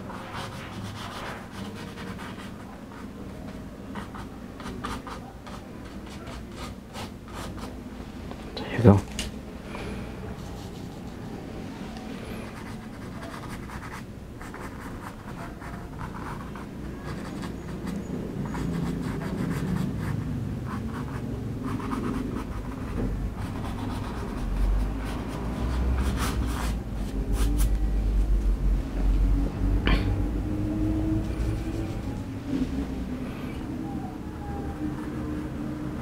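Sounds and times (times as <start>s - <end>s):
low rumble: 26.0s - 34.1s.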